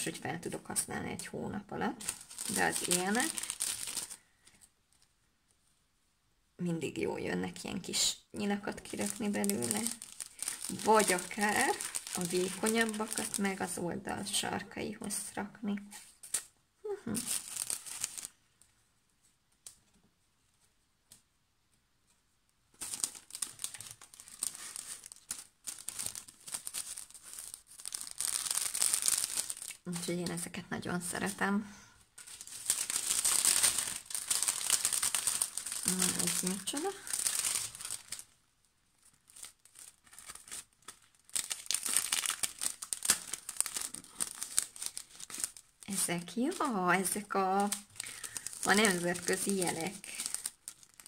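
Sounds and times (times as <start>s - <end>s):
plastic packaging crinkling: 1.8s - 5.1s, 7.9s - 14.5s, 15.9s - 18.6s, 22.8s - 31.5s, 32.1s - 51.0s.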